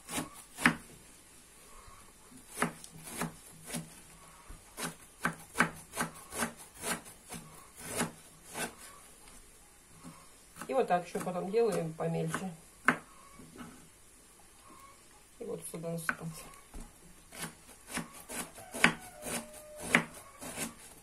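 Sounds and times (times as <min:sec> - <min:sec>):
knife slicing cabbage on board: 0:00.0 - 0:00.8, 0:02.5 - 0:04.0, 0:04.8 - 0:08.9, 0:17.3 - 0:21.0.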